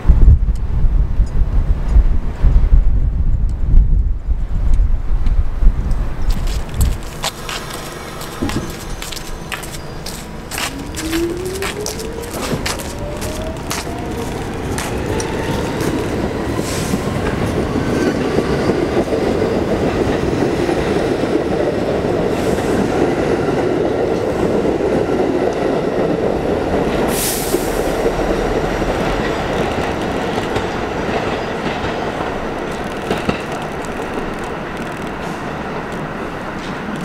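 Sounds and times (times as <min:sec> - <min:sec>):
subway train wheels clattering: 0:06.5 - 0:37.0
wheel squeal: 0:07.7 - 0:13.2
high hiss: 0:27.1 - 0:28.0.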